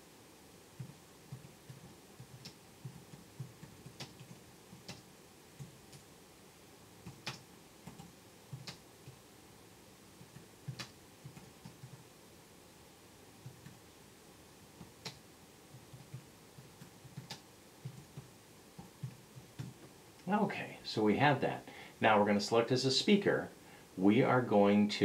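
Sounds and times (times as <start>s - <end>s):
computer keyboard typing: 0.8s - 6.1s, 7.0s - 9.2s, 10.2s - 12.0s, 14.8s - 19.8s.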